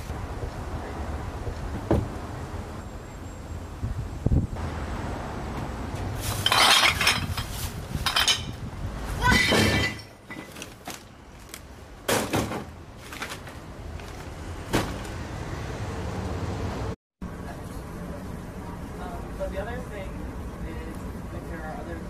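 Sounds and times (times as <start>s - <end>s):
hard objects crashing and clinking: 6.3s - 7.5s.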